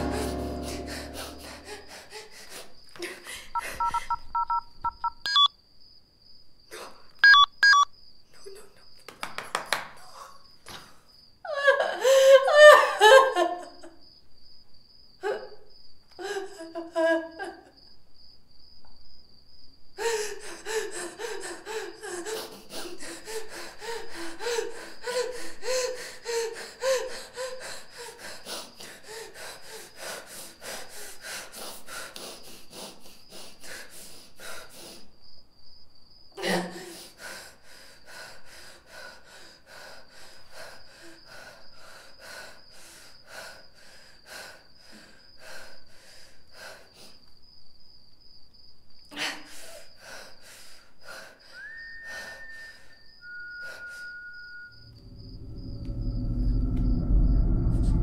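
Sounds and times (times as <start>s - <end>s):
woman sobbing: 0.0s - 4.4s, 11.5s - 14.0s, 15.2s - 15.6s, 16.2s - 17.7s, 20.0s - 29.9s, 36.4s - 37.2s
phone keypad beeps: 3.8s - 5.5s, 7.2s - 7.9s.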